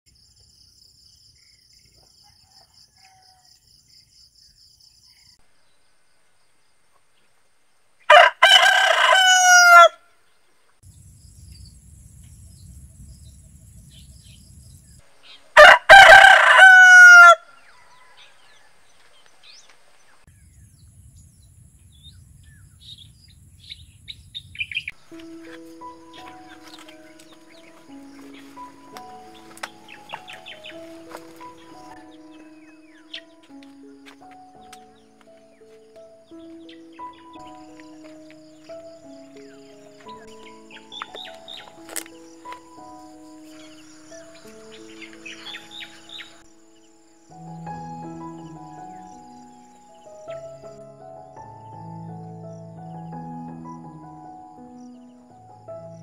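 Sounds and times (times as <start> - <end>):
rooster crowing: 2.2 - 3.6, 8.1 - 10.0, 15.6 - 18.9.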